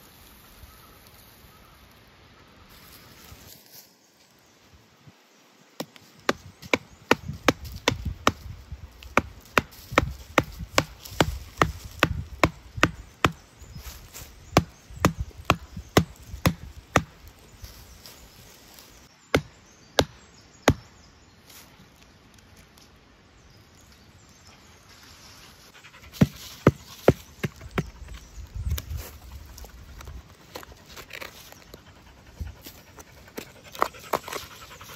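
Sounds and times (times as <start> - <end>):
blade chopping wood: 5.8 - 13.4, 19.3 - 20.9.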